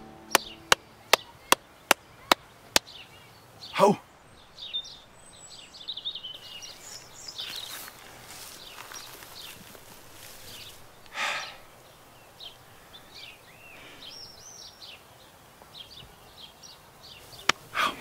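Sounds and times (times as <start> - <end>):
birds chirping: 0.0 - 18.0
short breathy hiss: 11.1 - 11.7.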